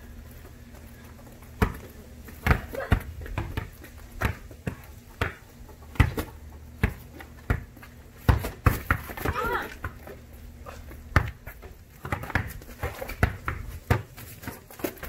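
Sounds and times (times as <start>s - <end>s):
basketball bouncing on plastic tiles: 11.1s - 14.2s.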